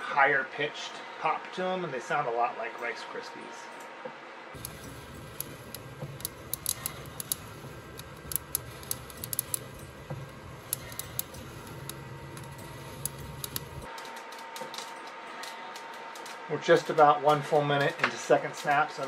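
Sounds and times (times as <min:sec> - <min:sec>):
roaster humming: 0:04.6 - 0:13.9
coffee beans popping: 0:04.6 - 0:14.8.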